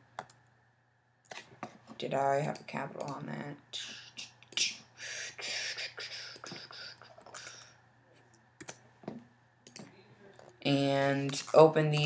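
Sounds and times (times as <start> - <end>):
soft breathy whispering: 3.7 - 8.2.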